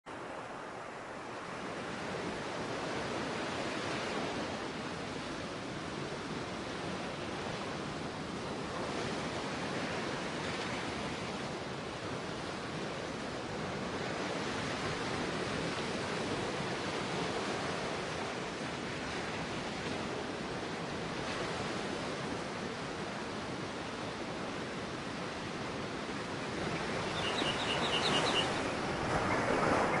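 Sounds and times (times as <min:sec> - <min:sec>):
waves breaking on beach: 0:00.1 - 0:30.0
bird chirping high notes: 0:27.0 - 0:30.0.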